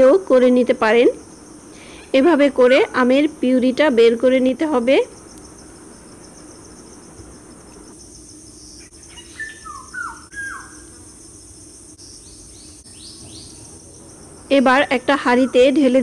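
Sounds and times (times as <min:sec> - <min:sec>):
insects chirring: 0:00.0 - 0:16.0
falling bird chirps: 0:08.6 - 0:11.1, 0:12.0 - 0:14.3.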